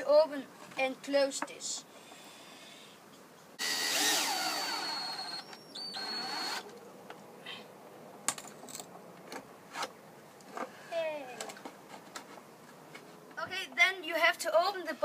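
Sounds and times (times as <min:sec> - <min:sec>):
cordless drill whining: 0:03.6 - 0:06.6.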